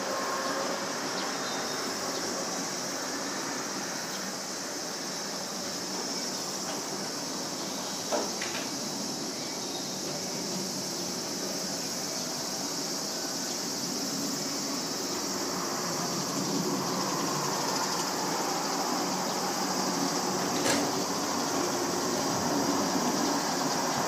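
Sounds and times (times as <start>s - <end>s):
jet engines roaring: 13.6s - 24.0s.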